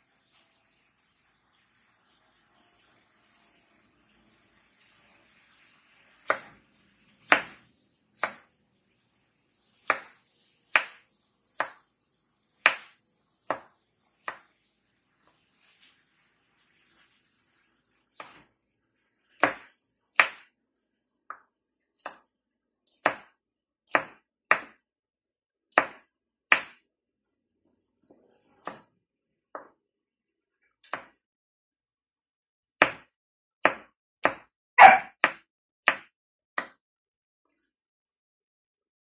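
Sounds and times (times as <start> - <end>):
knife chopping on wooden board: 6.2 - 6.6, 7.2 - 7.6, 8.2 - 8.5, 9.8 - 11.0, 11.6 - 11.8, 12.6 - 14.5, 19.4 - 20.5, 22.0 - 22.3, 22.9 - 24.8, 25.7 - 26.8, 28.6 - 28.9, 30.8 - 31.2, 32.8 - 36.8.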